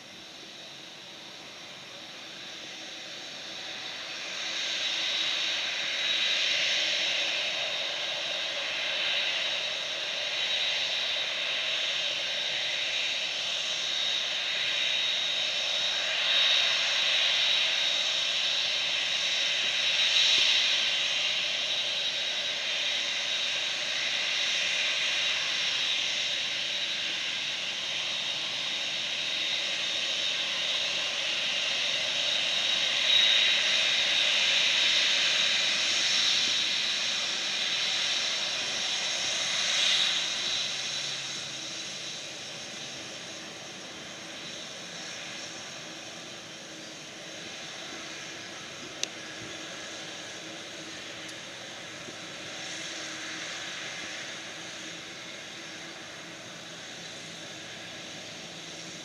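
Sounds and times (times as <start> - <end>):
jet engines whining: 0.0 - 59.0.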